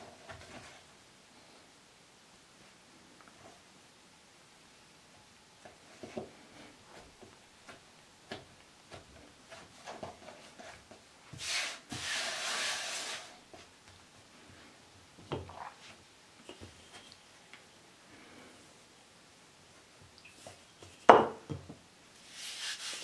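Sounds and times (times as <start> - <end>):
hand sweeping flour on countertop: 9.5 - 13.7, 22.2 - 23.0.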